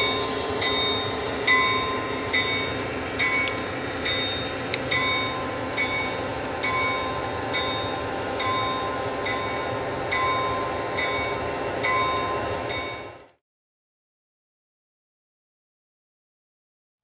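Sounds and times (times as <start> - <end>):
model locomotive bell ringing: 0.0 - 13.4
model train rumble: 0.0 - 13.4.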